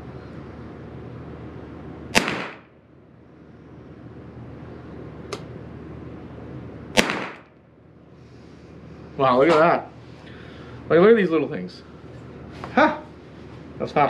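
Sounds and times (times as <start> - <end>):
rifle shots with echo: 2.1 - 2.7, 7.0 - 7.5.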